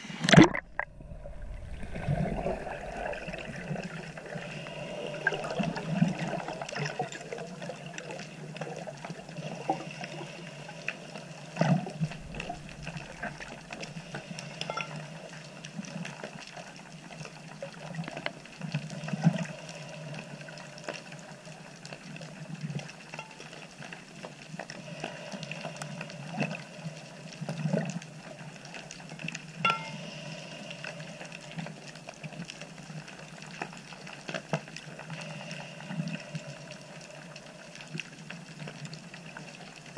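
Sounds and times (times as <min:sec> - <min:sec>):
underwater water noise: 0:00.0 - 0:39.9
underwater clicks and pops: 0:00.2 - 0:00.9.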